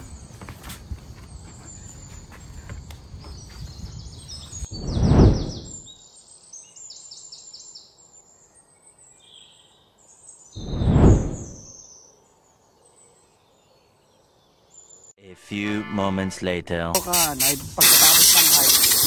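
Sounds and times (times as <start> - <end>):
birds chirping: 0.0 - 15.1
wind rumbling on microphone: 2.5 - 5.9, 10.6 - 11.7
loud whoosh: 4.8 - 5.8, 10.6 - 11.7.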